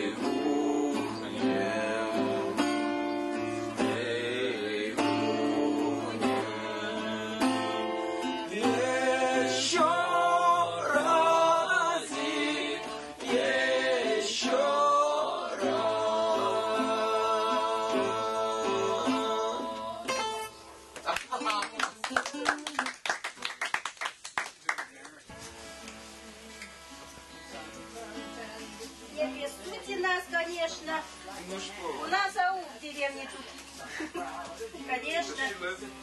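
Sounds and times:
acoustic guitar strumming: 0.0s - 21.1s, 25.3s - 32.4s
woman singing: 15.4s - 20.1s.

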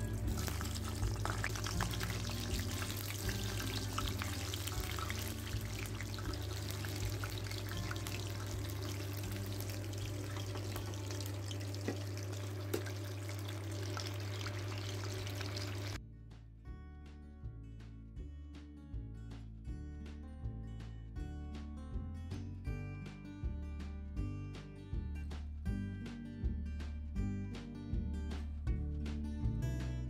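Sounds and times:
food deep-frying in oil: 0.0s - 16.0s
crackles and pops of oil: 0.2s - 13.3s.

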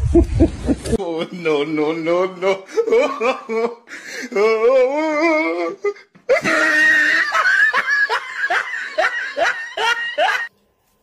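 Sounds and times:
person laughing hard: 0.0s - 1.0s, 2.7s - 5.6s, 6.3s - 10.5s.

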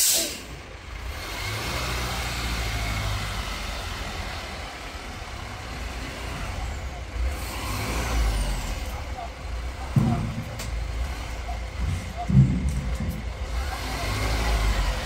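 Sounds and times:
outdoor hiss: 0.0s - 0.6s
diesel truck engine rumbling: 0.0s - 15.0s.

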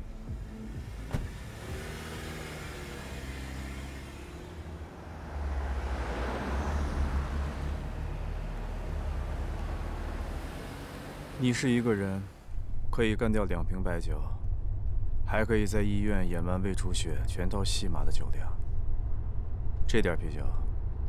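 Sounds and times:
car pulling away: 0.1s - 12.6s
car door shutting: 1.0s - 1.7s
car driving past: 1.0s - 12.5s.

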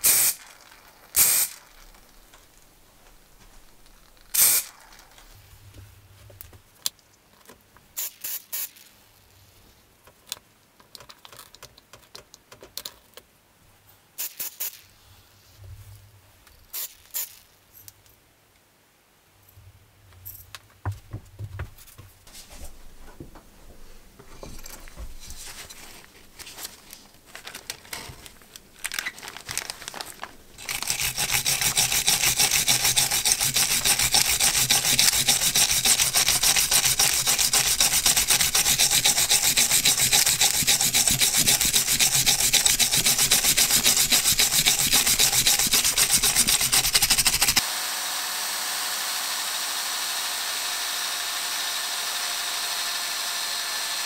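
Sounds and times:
scrapes and clicks: 24.4s - 47.6s
brush scrubbing metal: 30.6s - 47.6s.

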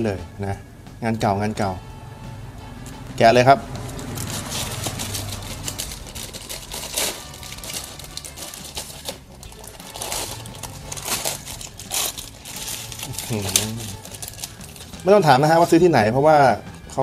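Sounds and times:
plastic wrapper crinkling and tearing: 4.2s - 15.1s.

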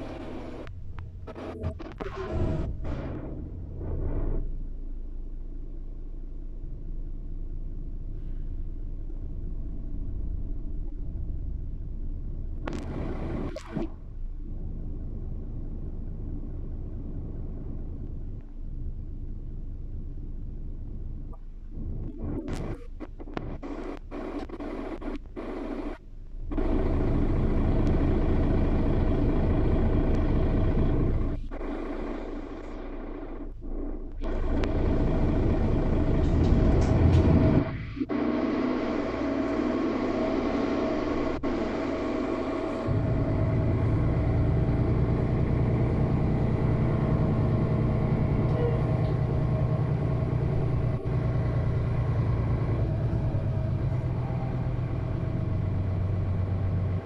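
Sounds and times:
bus engine and road noise: 0.0s - 57.0s.

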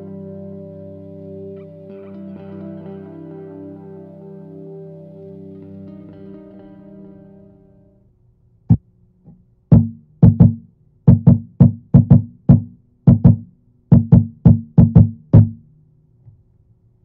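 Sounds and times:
stomp box bassy thumps: 9.7s - 15.6s.

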